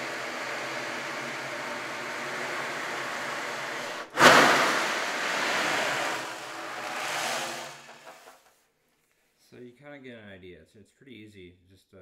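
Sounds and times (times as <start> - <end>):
ocean drum beads rolling: 0.0 - 8.4
ocean drum loud crash: 4.1 - 8.3.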